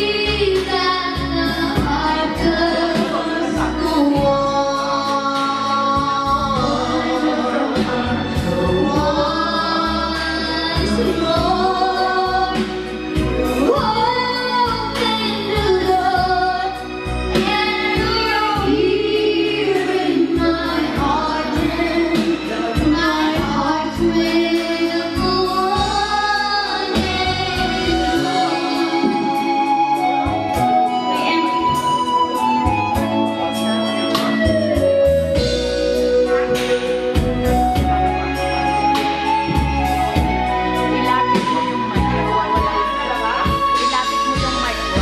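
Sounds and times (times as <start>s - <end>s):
girl singing into a microphone: 0.0s - 32.4s
instrumental accompaniment: 0.0s - 45.0s.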